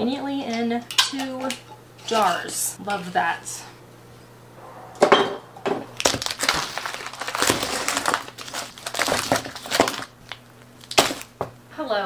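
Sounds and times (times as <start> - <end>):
plastic bags crinkling: 5.9 - 11.5.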